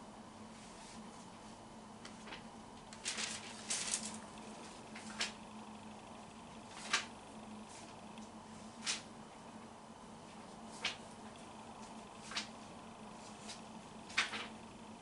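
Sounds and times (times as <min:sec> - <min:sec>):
thin pages rustling and turning: 0:02.0 - 0:05.4, 0:06.7 - 0:07.1, 0:07.7 - 0:09.1, 0:10.3 - 0:11.1, 0:11.8 - 0:12.6, 0:13.2 - 0:14.6.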